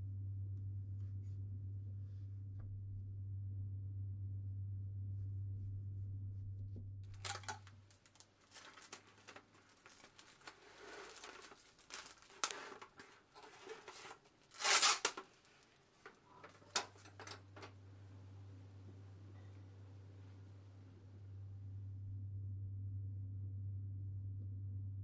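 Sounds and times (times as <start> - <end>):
cling wrap crinkling: 7.1 - 17.8
cling wrap ripping: 7.2 - 15.7.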